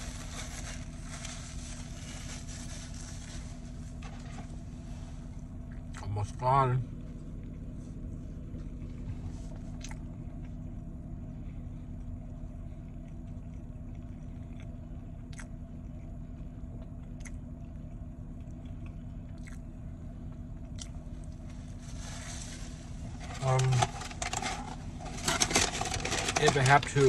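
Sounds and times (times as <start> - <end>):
car interior hum: 0.0 - 27.0
person chewing food: 8.6 - 10.8, 11.8 - 21.5.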